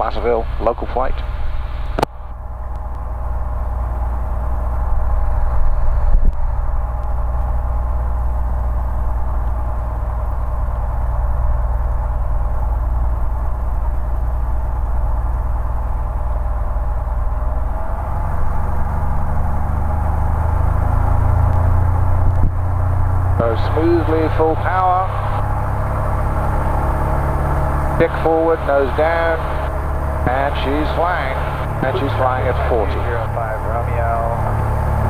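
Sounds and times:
propeller plane engine running: 0.0s - 35.0s.

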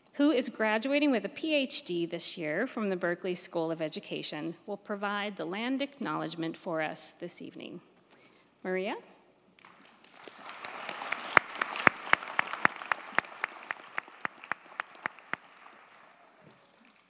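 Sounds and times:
audience applauding: 9.6s - 17.0s
person clapping nearby: 9.6s - 17.0s.

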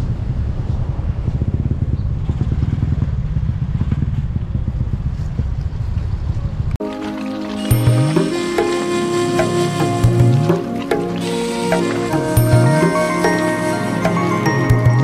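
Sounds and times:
motorcycle engine rumbling: 0.0s - 6.8s.

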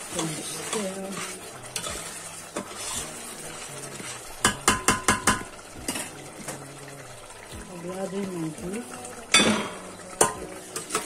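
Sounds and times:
metal spoon scraping a pot: 0.0s - 5.0s.

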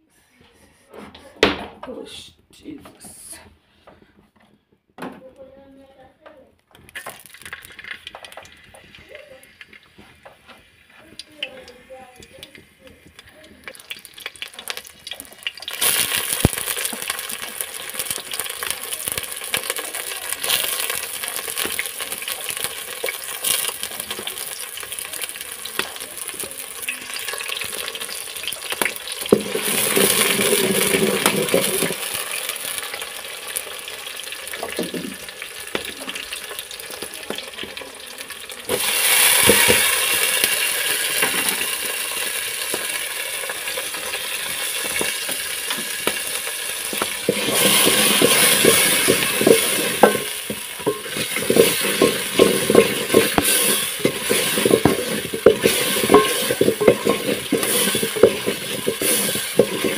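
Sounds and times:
onions sizzling in hot oil: 6.7s - 59.9s.

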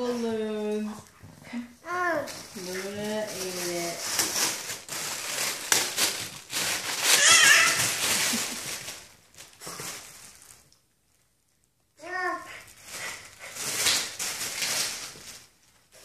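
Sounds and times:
foil balloons crinkling: 0.0s - 16.0s
dog squealing: 7.1s - 7.9s.

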